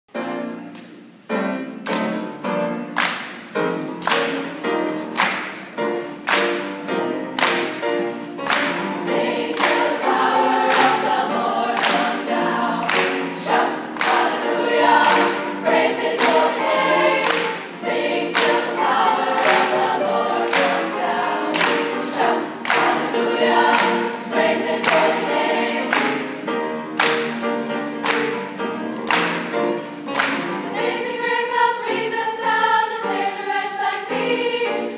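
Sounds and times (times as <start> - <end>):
piano: 0.1 - 34.9
hand claps: 1.8 - 2.3, 3.0 - 10.0, 10.6 - 11.2, 11.8 - 16.6, 17.2 - 17.7, 18.3 - 18.7, 19.4 - 24.1, 24.8 - 25.2, 25.9 - 26.3, 27.0 - 30.6
women's choir singing gospel: 4.0 - 34.9.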